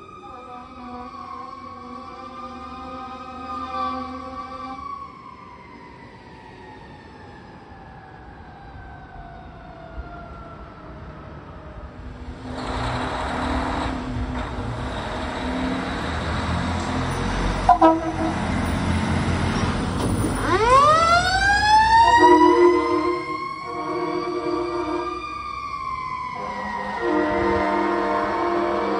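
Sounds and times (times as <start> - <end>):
siren wailing: 0.0 - 11.0, 17.6 - 28.9
truck engine rumble: 11.9 - 28.8
air horn blast: 17.6 - 18.9, 22.0 - 25.2, 26.4 - 28.9
truck horn blip: 17.7 - 18.6.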